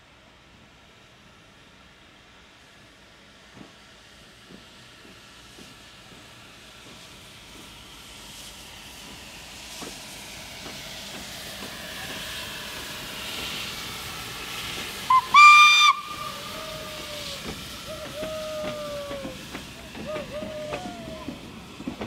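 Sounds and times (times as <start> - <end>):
steam locomotive hissing: 0.1 - 22.0
steam whistle blast: 15.1 - 19.4
short train toot: 15.1 - 21.4.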